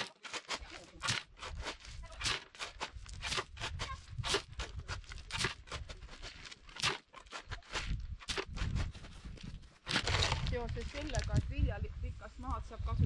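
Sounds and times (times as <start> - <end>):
gravel crunching and scraping: 0.0 - 11.8.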